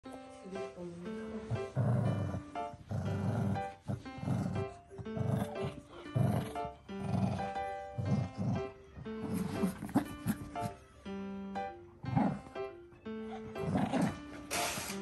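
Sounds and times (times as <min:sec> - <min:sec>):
background music: 0:00.0 - 0:15.0
dog growling: 0:01.4 - 0:10.8, 0:12.0 - 0:12.6, 0:13.2 - 0:15.0.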